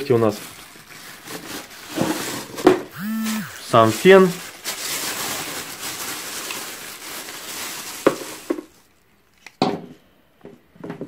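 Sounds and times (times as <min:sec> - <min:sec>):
plastic bag rustling: 0:00.0 - 0:02.8, 0:03.7 - 0:08.9.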